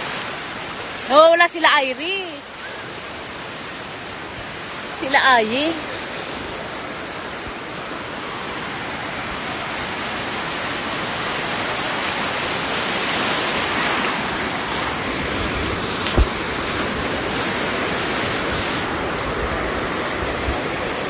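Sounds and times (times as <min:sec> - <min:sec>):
ocean surf rushing: 0:00.0 - 0:21.0
dull thump on microphone: 0:16.0 - 0:16.4.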